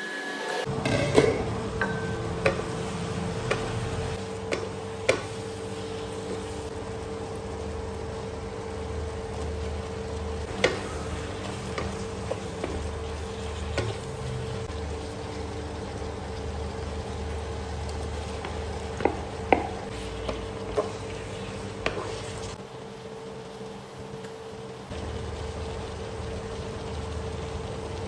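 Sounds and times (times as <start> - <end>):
electric cooktop hum: 0.0 - 28.0
food sizzling in a frying pan: 0.6 - 28.0
wooden spatula knocking on pan: 18.4 - 21.0.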